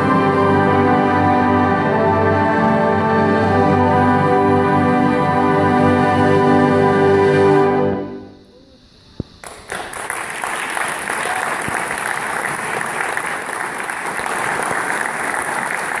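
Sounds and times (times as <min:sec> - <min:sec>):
concert band holding chord: 0:00.0 - 0:08.6
audience applause: 0:09.4 - 0:16.0.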